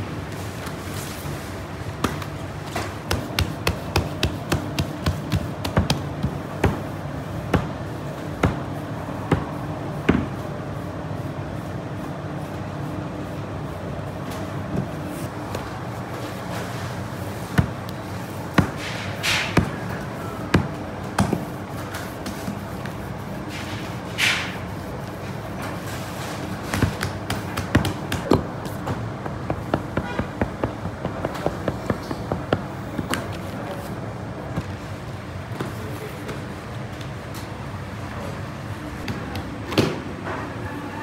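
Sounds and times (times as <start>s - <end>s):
hands slapping dough: 2.0s - 6.9s, 26.6s - 28.8s.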